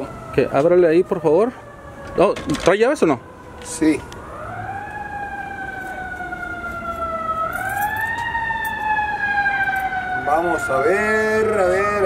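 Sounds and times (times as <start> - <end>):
emergency vehicle siren wailing: 0.0 - 12.0.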